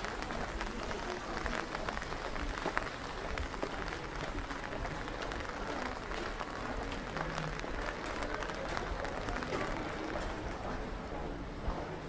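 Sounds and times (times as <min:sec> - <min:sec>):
light rain pattering: 0:00.0 - 0:12.0.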